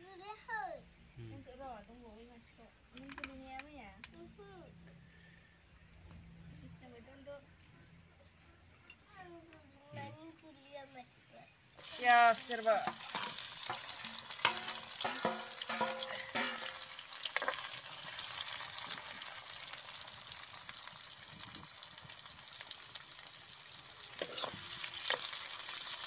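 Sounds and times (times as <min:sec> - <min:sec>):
onions sizzling in hot oil: 0:11.8 - 0:26.0
steel spatula scraping a pan: 0:12.0 - 0:19.0, 0:24.2 - 0:25.3.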